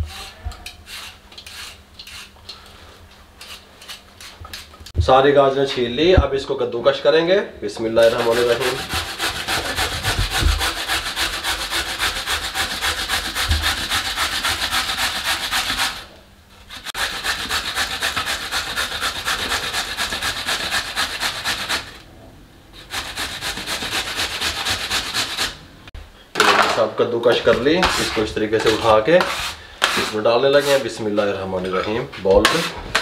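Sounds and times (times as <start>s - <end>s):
carrots grated on a box grater: 16.8s - 22.0s.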